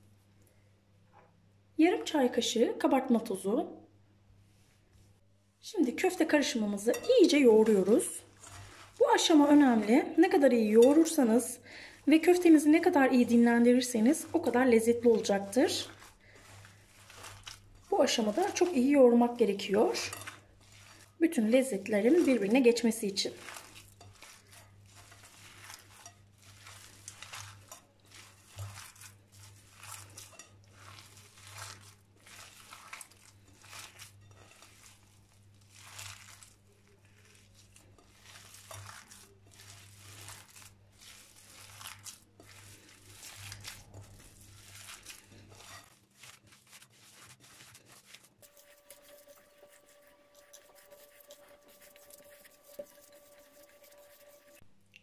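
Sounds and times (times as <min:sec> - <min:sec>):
hands kneading meat: 0:05.9 - 0:55.0.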